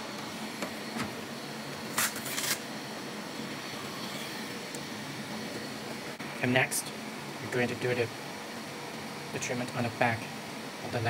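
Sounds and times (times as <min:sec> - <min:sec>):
steady fan-like hiss: 0:00.0 - 0:11.0
velcro strap ripping open: 0:02.0 - 0:02.6.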